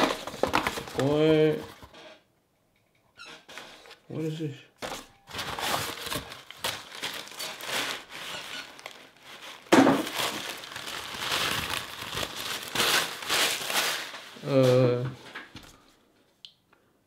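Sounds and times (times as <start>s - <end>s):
packing paper crinkling: 0.0s - 1.9s, 4.8s - 14.9s.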